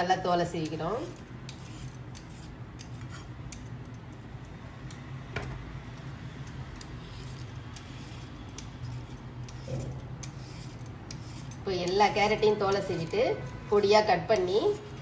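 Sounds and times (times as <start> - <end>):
peeler scraping a carrot: 0.0 - 3.7, 6.4 - 15.0.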